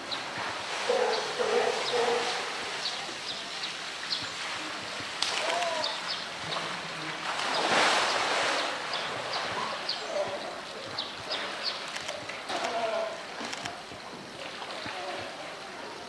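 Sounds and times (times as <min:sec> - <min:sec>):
big water splash: 0:00.3 - 0:10.5.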